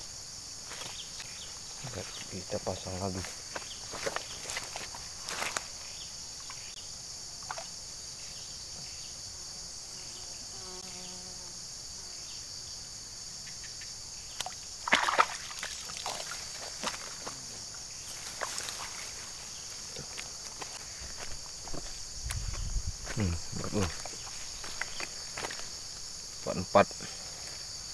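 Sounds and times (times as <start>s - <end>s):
high-pitched insect chorus: 0.0s - 27.9s
splashing and knocks in water: 14.4s - 17.4s, 18.2s - 19.1s
water sloshing: 14.4s - 17.4s, 18.1s - 19.4s.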